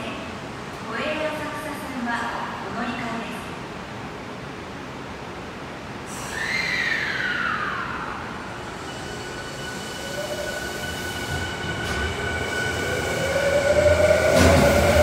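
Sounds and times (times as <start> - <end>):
train cars rumbling: 6.0 - 15.0
electric train motor whine: 8.4 - 15.0.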